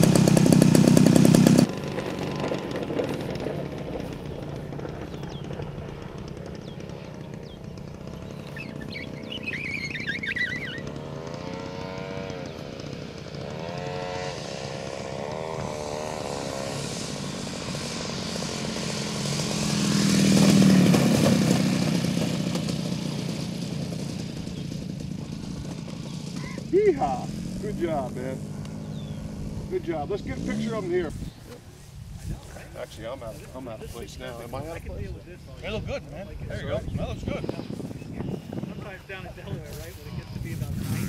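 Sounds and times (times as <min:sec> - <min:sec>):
model plane engine running: 0:00.0 - 0:31.3.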